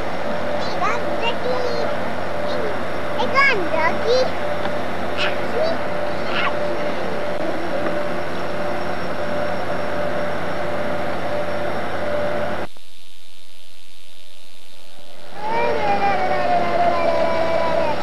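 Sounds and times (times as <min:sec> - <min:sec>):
engine drone: 0:00.0 - 0:12.8, 0:14.1 - 0:18.0.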